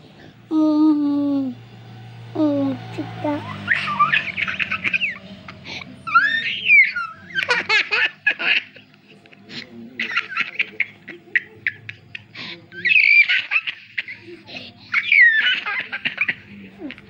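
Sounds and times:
young child giggling and squealing: 3.3 - 5.2, 6.1 - 7.4.

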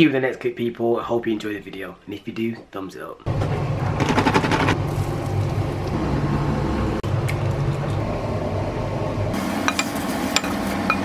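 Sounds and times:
low mechanical hum: 3.3 - 11.0
food sizzling in pan: 9.4 - 11.0.

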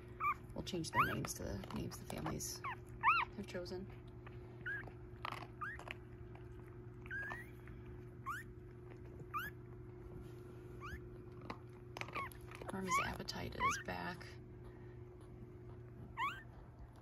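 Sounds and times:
puppies squeaking: 0.1 - 3.6, 4.6 - 6.1, 7.0 - 9.7, 10.8 - 11.2, 12.0 - 14.4, 16.0 - 16.7.

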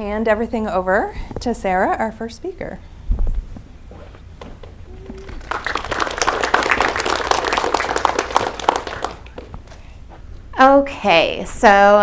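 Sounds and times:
audience applauding: 4.9 - 9.5.

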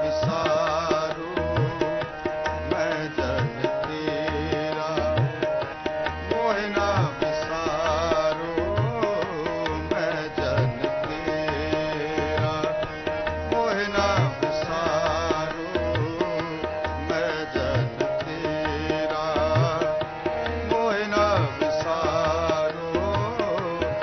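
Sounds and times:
harmoniums holding notes: 0.0 - 24.0
tabla drumming: 0.0 - 24.0
person singing: 6.2 - 24.0.

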